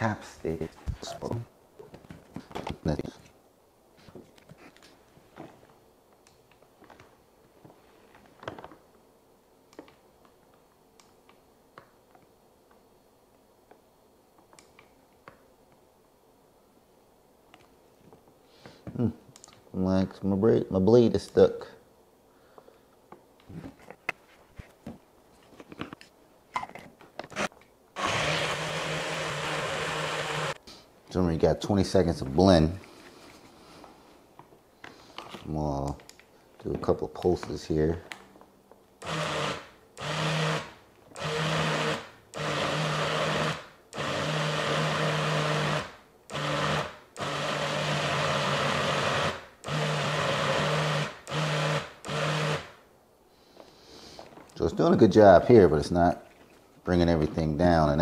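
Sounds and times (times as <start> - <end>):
blender motor whirring: 27.3 - 30.6, 39.0 - 52.7.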